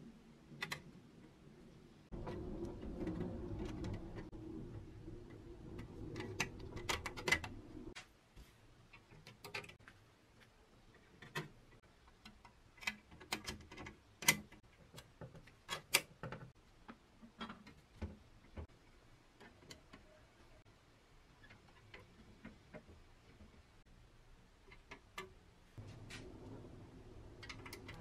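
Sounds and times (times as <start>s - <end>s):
low steady hum: 0.0s - 9.2s, 16.6s - 28.0s
small metallic clicks and taps: 24.6s - 26.3s, 27.4s - 28.0s.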